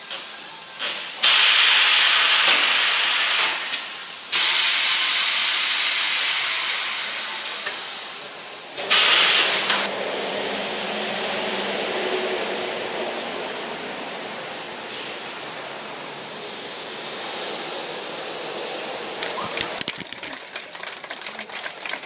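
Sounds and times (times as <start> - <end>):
compressed air hissing: 0.8 - 9.9.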